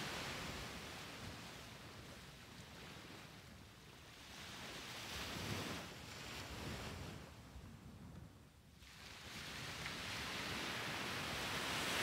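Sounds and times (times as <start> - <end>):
small waves breaking on beach: 0.0 - 7.5, 8.8 - 12.0.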